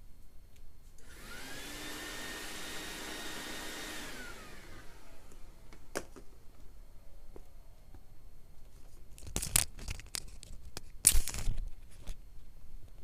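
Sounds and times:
vacuum motor winding down: 1.0 - 5.8
vacuum cleaner running: 1.0 - 6.0.

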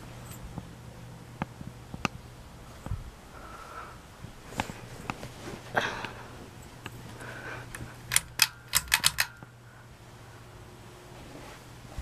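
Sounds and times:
ceiling fan motor hum: 0.0 - 12.0
sharp clicks: 7.7 - 9.5.

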